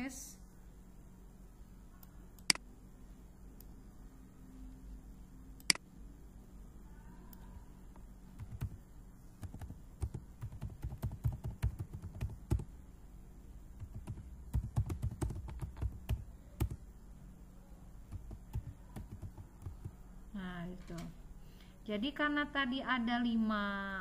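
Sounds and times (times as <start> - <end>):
computer keyboard typing: 8.4 - 8.8, 9.4 - 12.7, 13.8 - 16.8, 18.1 - 20.0.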